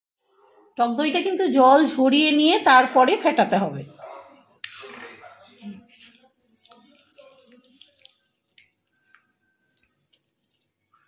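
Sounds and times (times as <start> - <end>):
hand mixing wet food squelching: 4.3 - 11.0.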